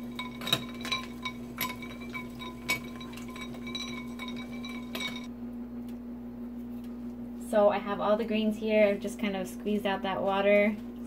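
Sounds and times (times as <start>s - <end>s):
ice and spoon clinking in bowl: 0.0s - 5.3s
steady low hum: 0.0s - 11.0s.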